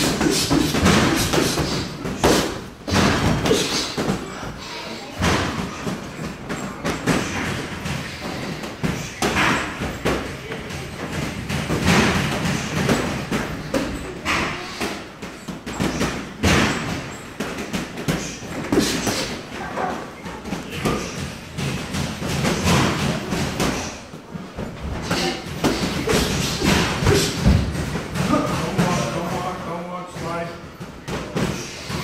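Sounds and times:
boxing gloves thudding: 0.0s - 4.3s.

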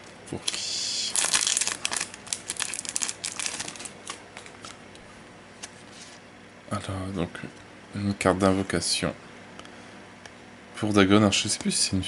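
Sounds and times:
plastic wrapping crinkling: 1.1s - 4.8s.

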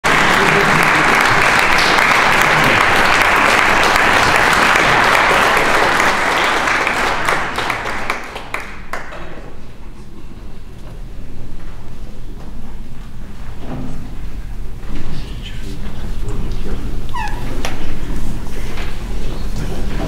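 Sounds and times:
audience applauding: 0.0s - 9.7s.

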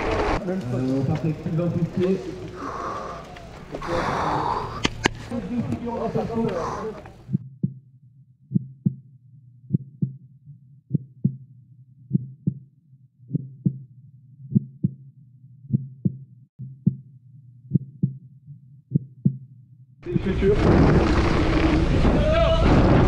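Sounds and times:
heartbeat thumps: 7.2s - 7.8s, 8.5s - 9.1s, 9.7s - 10.2s, 10.9s - 11.5s, 12.1s - 12.7s, 13.3s - 13.9s, 14.5s - 15.0s, 15.7s - 17.1s, 17.7s - 19.5s.

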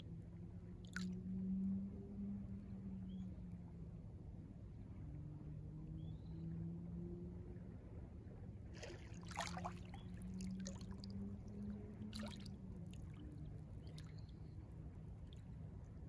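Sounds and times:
faint low hum: 0.0s - 16.0s
small water splashes: 0.8s - 1.2s, 8.7s - 14.5s
waves lapping at shore: 8.7s - 14.2s.

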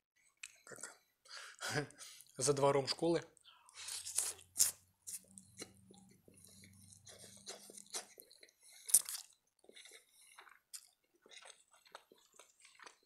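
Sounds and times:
wet mouth clicks and smacks: 0.4s - 0.6s, 3.8s - 9.7s
spaghetti slurping and chewing: 3.7s - 13.0s.

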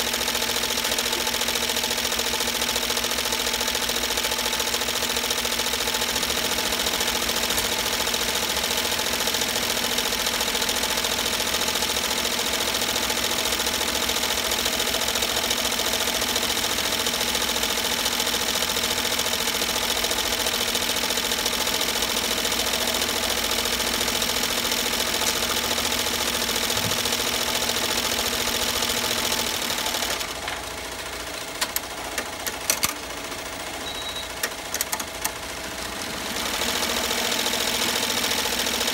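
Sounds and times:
embroidery machine needle clatter: 31.4s - 33.1s, 34.3s - 35.5s
sharp clicks: 31.6s - 33.0s, 34.4s - 35.4s.

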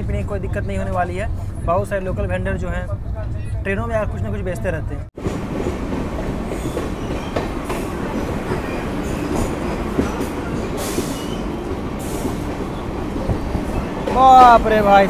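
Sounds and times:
train wheels rumbling on rails: 4.2s - 15.0s.

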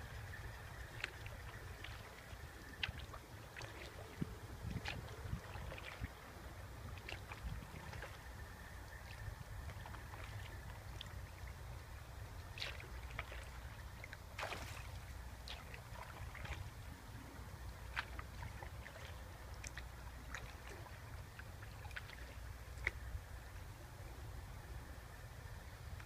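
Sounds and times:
low steady rumble: 0.0s - 26.0s
soft paddle strokes: 0.0s - 26.0s
water dripping: 0.2s - 8.2s, 17.9s - 23.0s
water splash: 0.7s - 6.2s, 12.4s - 16.8s.

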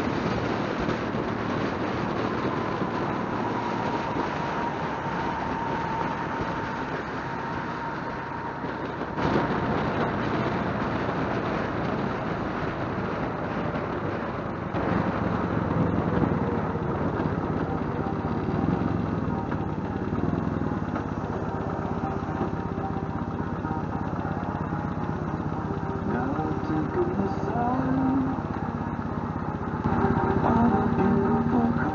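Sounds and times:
motorcycle engine running: 0.0s - 31.9s
road and wind rush: 0.0s - 31.9s.

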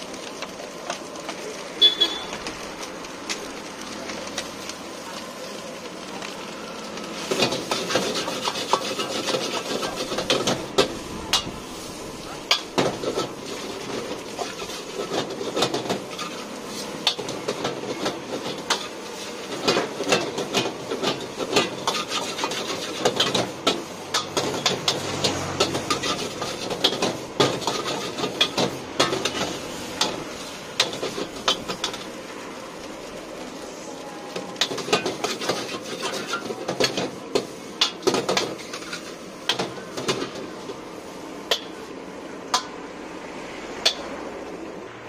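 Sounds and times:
ladle scraping a metal wok: 7.2s - 32.1s, 34.6s - 40.6s.

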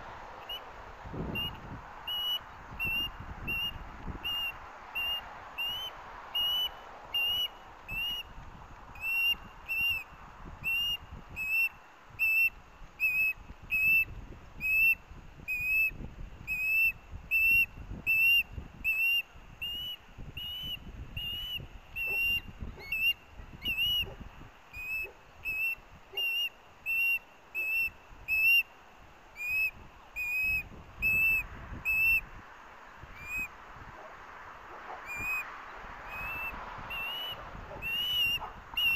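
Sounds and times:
osprey whistled begging calls: 0.4s - 8.3s, 9.0s - 28.7s, 29.3s - 32.3s, 33.1s - 34.1s, 34.7s - 38.9s.

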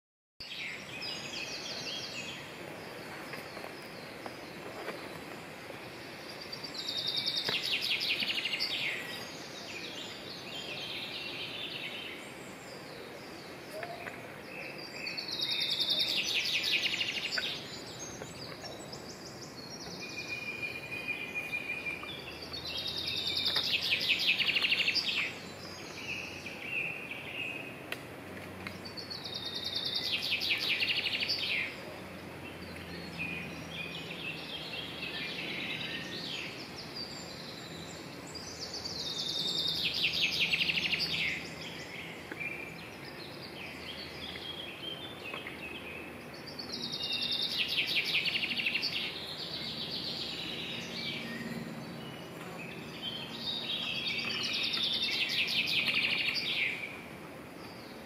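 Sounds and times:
songbird trilling song: 0.4s - 28.0s, 28.6s - 58.0s
faint bird calls: 13.7s - 14.7s.

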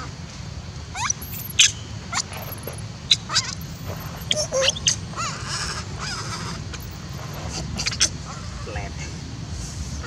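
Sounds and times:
baby monkey squealing: 0.9s - 8.4s.

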